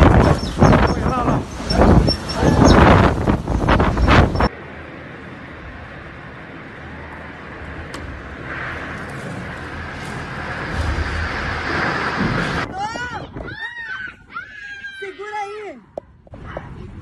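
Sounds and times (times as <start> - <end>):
wind blast on microphone: 0.0 - 4.5, 8.2 - 14.1
storm wind and rain: 0.0 - 14.4.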